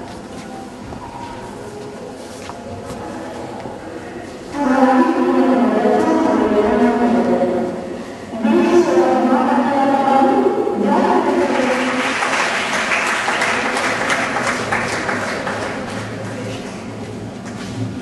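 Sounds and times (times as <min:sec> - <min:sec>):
audience applauding: 0:11.4 - 0:17.6.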